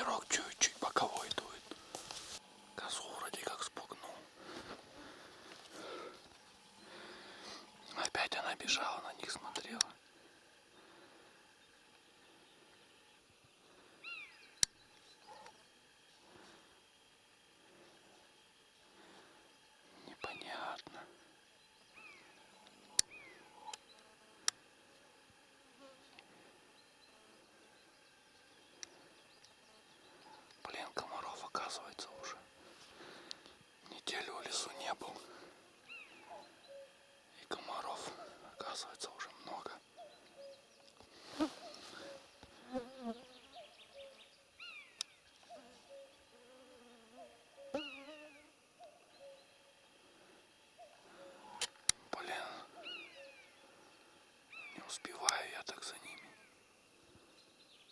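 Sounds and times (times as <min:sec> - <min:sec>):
faint woodland ambience: 0:00.0 - 0:57.9
mosquitoes whining: 0:32.2 - 0:51.6
sharp clicks: 0:51.6 - 0:52.0.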